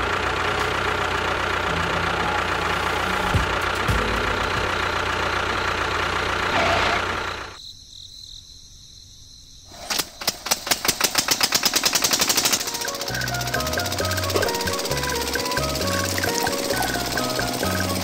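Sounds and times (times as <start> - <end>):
small motor running: 12.0 - 18.0.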